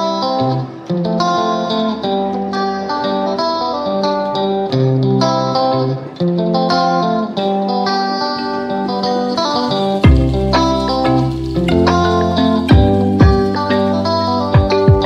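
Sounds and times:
plucked guitar melody: 0.0s - 15.0s.

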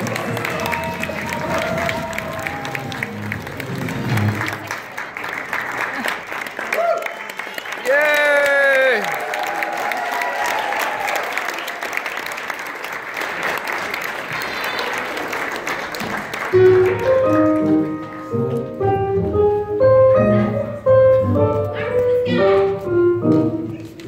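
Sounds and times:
lively piano tune: 0.0s - 4.8s, 16.3s - 24.0s
audience applauding: 0.0s - 18.4s.

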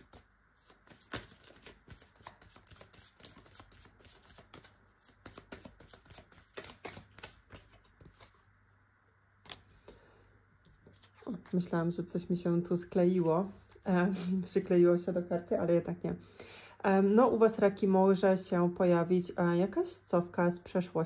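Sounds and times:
cards being shuffled: 0.0s - 8.4s.

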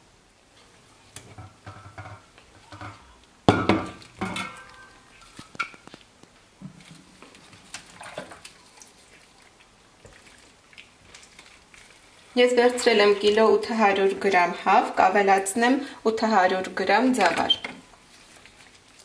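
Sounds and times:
metal pots clanking on counter: 1.3s - 4.8s.

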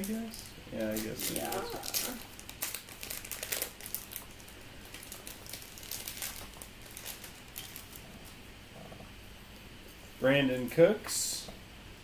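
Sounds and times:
foil wrapper crinkling: 0.0s - 8.0s.

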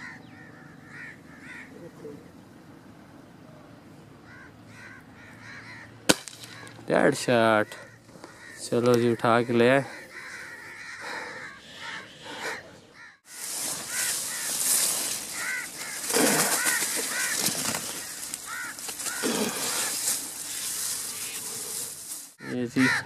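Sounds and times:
crop leaves rustling: 13.0s - 23.0s.

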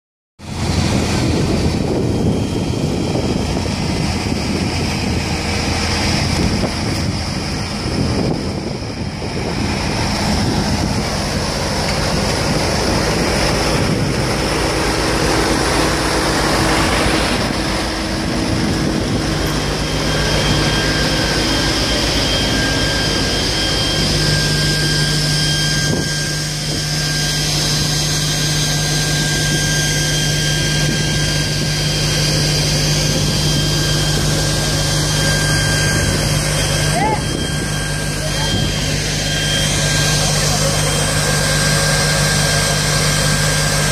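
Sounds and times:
fire engine pump humming: 0.4s - 43.9s.

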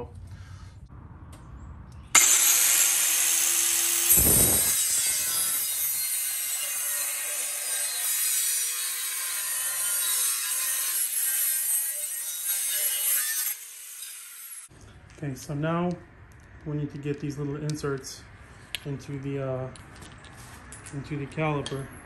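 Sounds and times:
angle grinder cutting metal: 2.1s - 14.7s.

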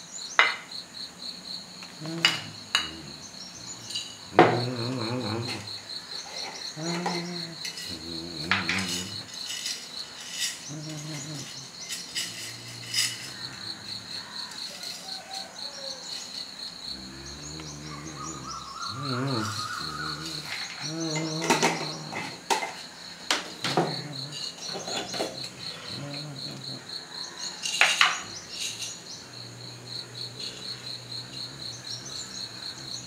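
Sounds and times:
insects trilling: 0.0s - 33.0s
spoon clinking glass jars: 6.3s - 13.8s, 27.6s - 29.1s.

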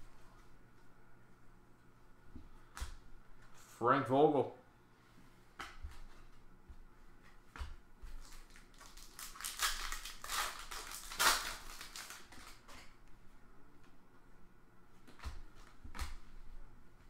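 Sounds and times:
foil wrapper crinkling and tearing: 8.2s - 12.9s.

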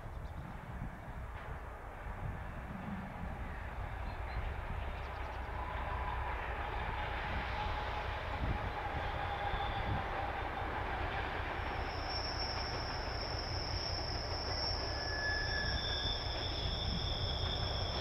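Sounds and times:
diesel locomotive engine rumble: 0.0s - 18.0s
train rolling noise: 0.0s - 18.0s
high wheel squeal: 11.6s - 18.0s.

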